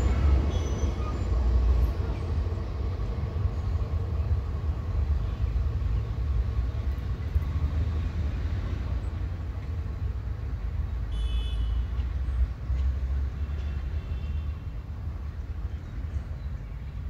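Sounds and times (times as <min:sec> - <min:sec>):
diesel locomotive rumbling past: 0:00.0 - 0:11.1.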